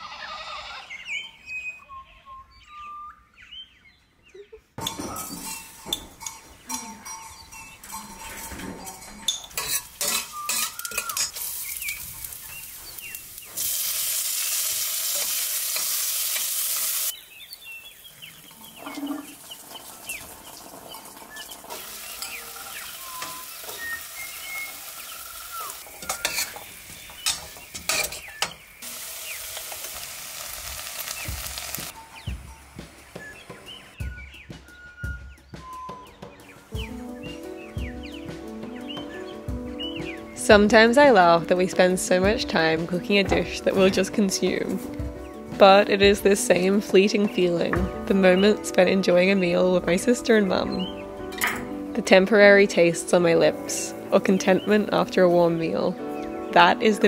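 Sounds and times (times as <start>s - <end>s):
utensils clinking: 4.8s - 13.8s, 18.5s - 32.0s, 46.5s - 55.8s
food sizzling in a pan: 9.6s - 17.2s, 18.4s - 32.0s.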